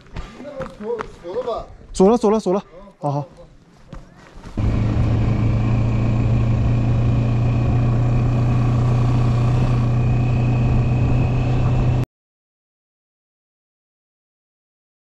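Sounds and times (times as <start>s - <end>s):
motorcycle engine running: 4.6s - 12.0s.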